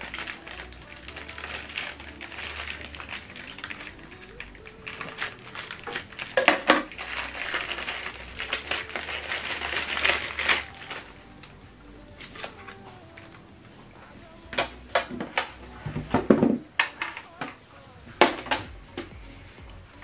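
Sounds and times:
scissors cutting plastic: 0:00.0 - 0:11.2, 0:12.2 - 0:13.4, 0:14.5 - 0:17.6
plastic bag crinkling: 0:00.0 - 0:11.6.

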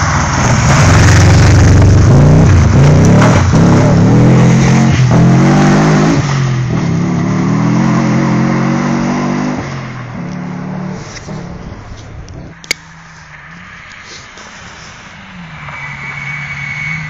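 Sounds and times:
rally car engine pulling hard: 0:00.0 - 0:12.5.

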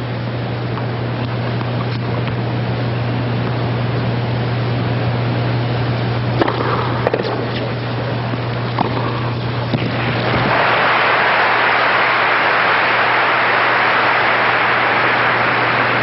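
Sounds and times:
steady low hum: 0:00.0 - 0:16.0
tennis ball struck by racket: 0:06.4 - 0:07.7
steady hiss: 0:06.4 - 0:16.0.

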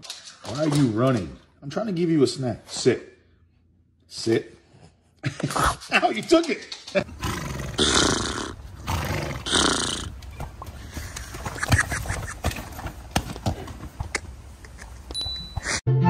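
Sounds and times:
horse calling: 0:07.0 - 0:13.0
hooves thudding on mud: 0:10.0 - 0:14.4.

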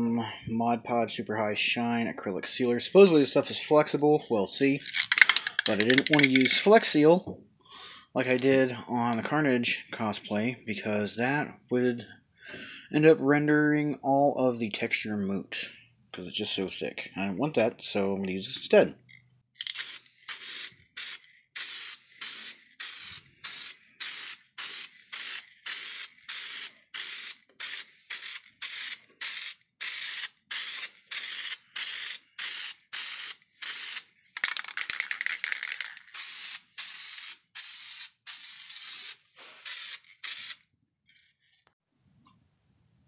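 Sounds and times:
aerosol can spraying hisses: 0:19.7 - 0:34.0, 0:36.1 - 0:40.6.

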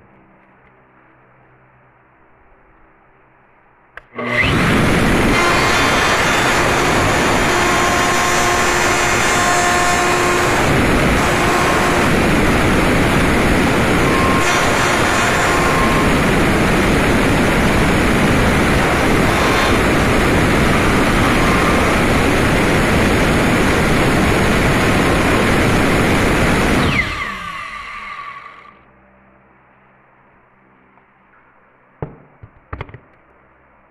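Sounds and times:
power router whirring: 0:04.0 - 0:28.8
router motor winding down: 0:04.1 - 0:28.8.

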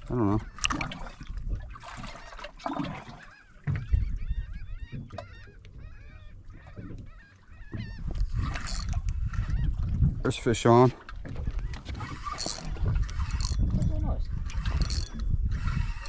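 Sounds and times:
bird calling high cries: 0:03.1 - 0:08.8.

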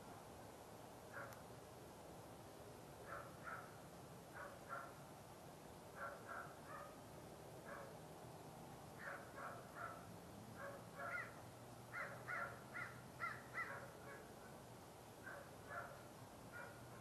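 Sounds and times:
crow cawing: 0:11.1 - 0:13.8.

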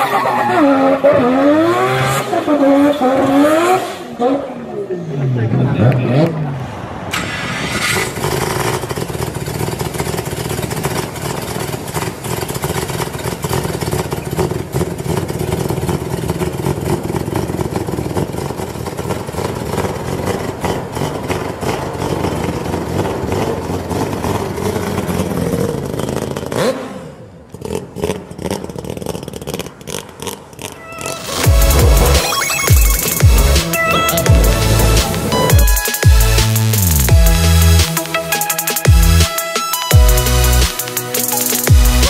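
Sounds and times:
exhaust pops: 0:07.1 - 0:26.6.

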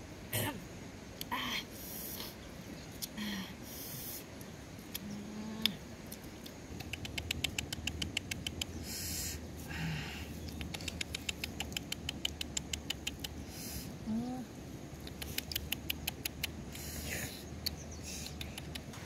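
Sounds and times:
rabbit chewing clicks: 0:06.4 - 0:08.8, 0:10.5 - 0:13.4, 0:15.0 - 0:16.8, 0:17.7 - 0:19.0.

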